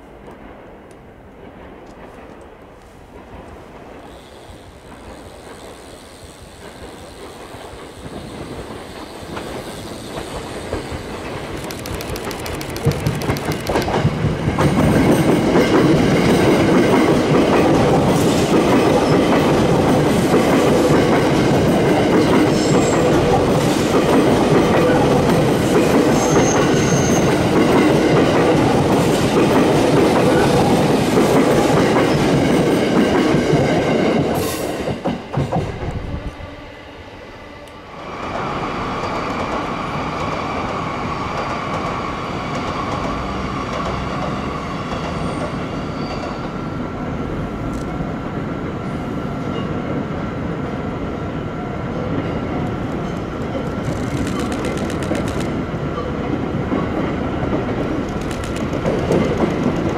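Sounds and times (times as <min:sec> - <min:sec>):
electric train passing: 0:00.0 - 0:59.9
wheels clicking over rail joints: 0:03.4 - 0:26.7, 0:52.6 - 0:59.9.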